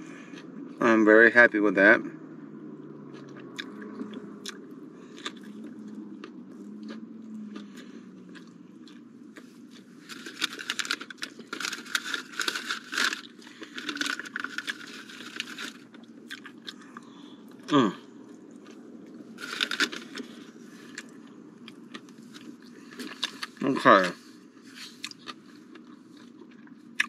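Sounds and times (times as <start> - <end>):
person chewing with crunches: 0.0 - 0.8, 2.5 - 27.0.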